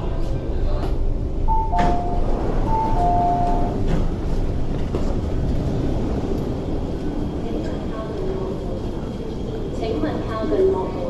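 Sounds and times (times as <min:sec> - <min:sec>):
low train and station rumble: 0:00.0 - 0:11.0
two-note electronic door chime: 0:01.5 - 0:03.8
train doors releasing knock: 0:01.5 - 0:04.3.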